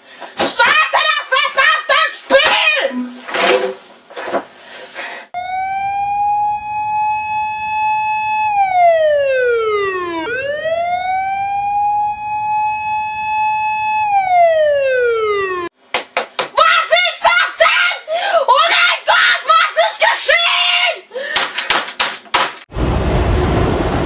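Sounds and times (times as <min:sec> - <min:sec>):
alert siren wailing: 0:05.4 - 0:15.7.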